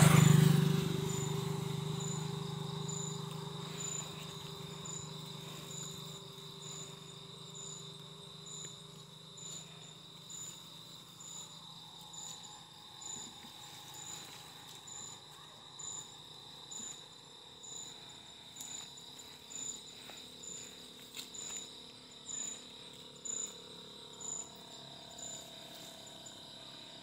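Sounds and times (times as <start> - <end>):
passing vehicle hum: 0.0 - 20.8
crickets trilling: 0.0 - 27.0.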